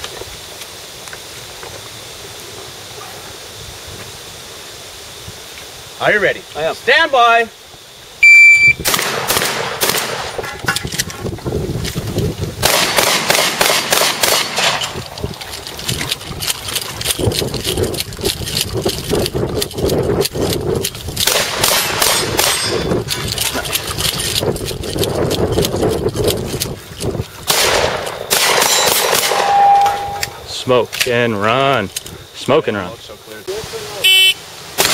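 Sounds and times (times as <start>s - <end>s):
shot timer beep: 8.2s - 8.8s, 29.3s - 30.3s, 34.1s - 34.4s
shotgun firing: 8.8s - 10.4s, 12.6s - 15.0s, 21.2s - 22.8s, 27.5s - 29.8s
steel targets clanging: 21.8s - 23.0s, 27.9s - 30.5s.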